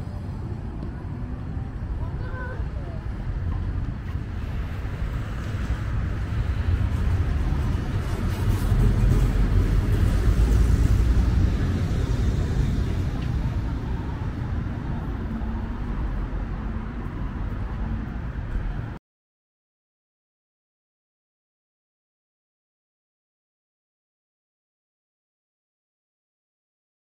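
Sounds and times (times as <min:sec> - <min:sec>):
tram rumbling past: 0:00.0 - 0:19.0.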